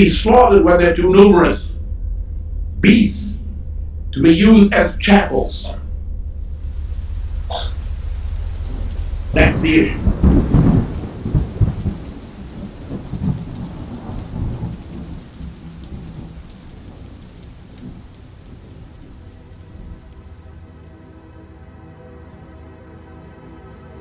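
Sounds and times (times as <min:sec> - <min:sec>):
thunder rumbling: 0:06.0 - 0:21.5
steady rain: 0:06.2 - 0:21.7.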